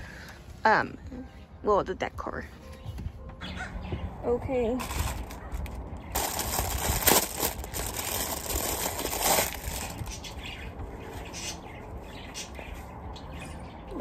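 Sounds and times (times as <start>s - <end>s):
plastic packaging crinkling: 4.8s - 10.2s.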